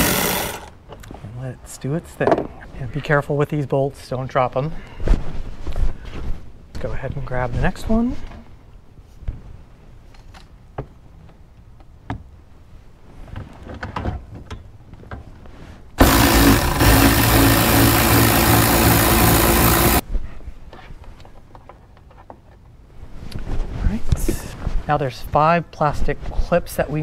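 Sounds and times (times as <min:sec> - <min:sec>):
cordless ratchet wrench whirring: 0:16.0 - 0:20.0.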